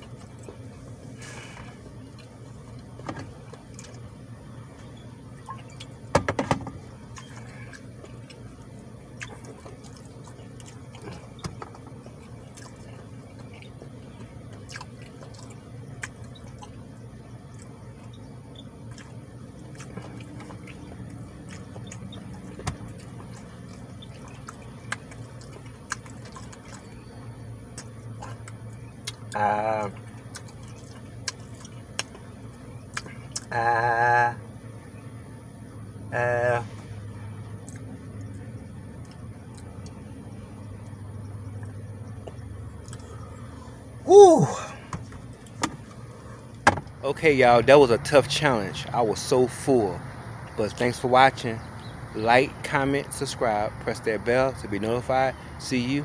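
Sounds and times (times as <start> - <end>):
man chewing food: 0.0 - 6.1, 6.8 - 33.5, 36.8 - 44.0
steady low hum: 0.0 - 56.0.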